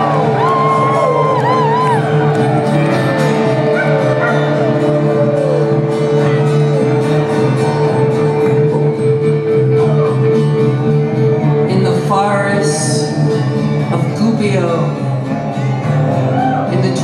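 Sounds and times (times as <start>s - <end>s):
voices howling and yelping: 0.0s - 7.2s
live rock band: 0.0s - 17.0s.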